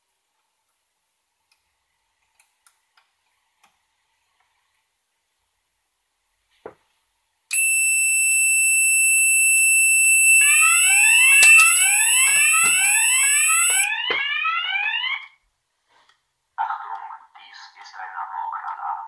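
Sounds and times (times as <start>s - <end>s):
steady high-pitched alarm tone: 7.5s - 15.1s
rising alarm sweeps: 7.6s - 15.2s
small click: 11.3s - 12.9s.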